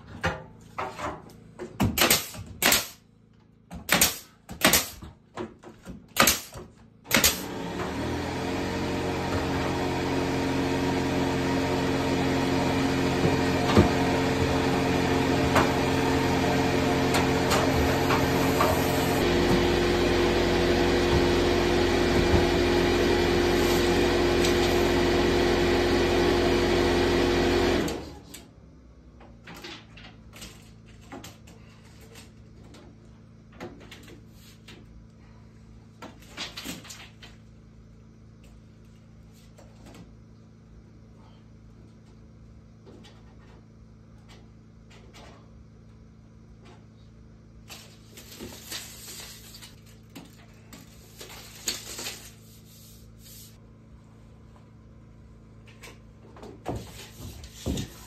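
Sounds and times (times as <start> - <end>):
air compressor running: 6.1 - 28.3.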